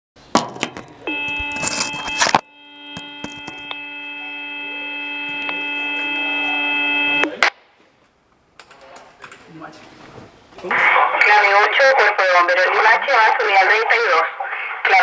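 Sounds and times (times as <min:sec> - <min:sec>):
fire engine horn chord: 0:01.1 - 0:07.4.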